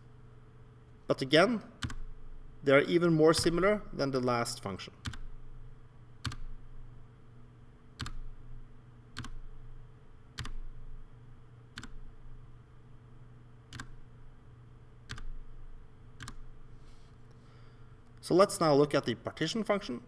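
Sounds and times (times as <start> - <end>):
faint low hum: 0.0 - 20.0
computer keyboard key presses: 1.8 - 2.0, 5.0 - 5.3, 6.2 - 6.5, 8.0 - 8.3, 9.2 - 9.4, 10.4 - 10.6, 11.8 - 12.0, 13.7 - 14.0, 15.1 - 15.4, 16.2 - 16.5.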